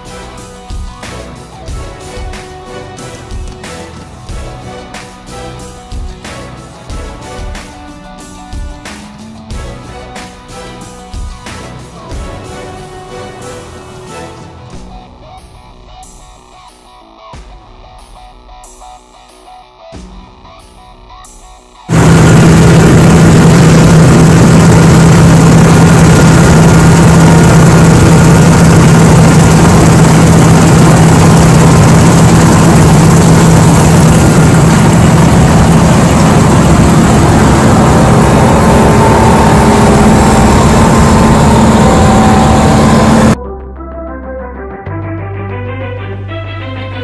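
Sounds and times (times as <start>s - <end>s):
farm machinery engine running: 21.9s - 43.4s.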